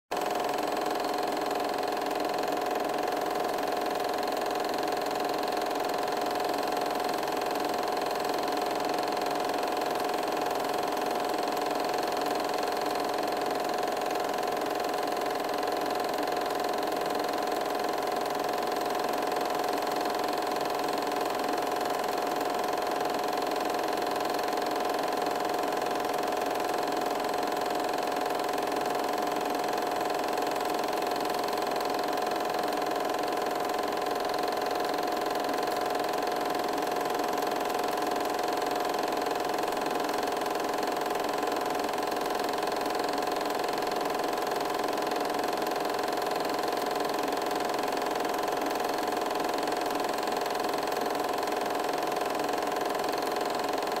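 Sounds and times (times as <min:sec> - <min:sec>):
film projector whirring: 0:00.1 - 0:54.0.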